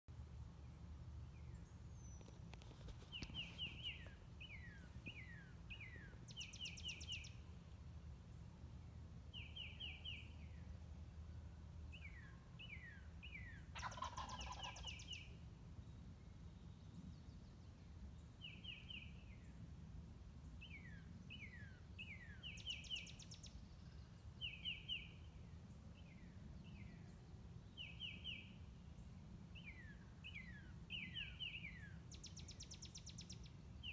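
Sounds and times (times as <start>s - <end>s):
faint birdsong: 0.2s - 33.9s
turkey gobbling: 13.7s - 15.0s.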